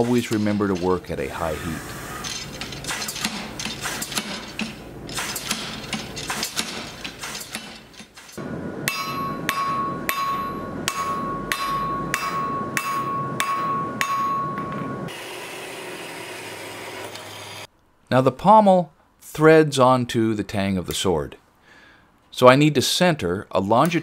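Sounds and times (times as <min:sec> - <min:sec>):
power hammer striking hot steel: 0:02.9 - 0:07.7, 0:08.4 - 0:16.0
hand hammer on ringing anvil: 0:08.8 - 0:15.1.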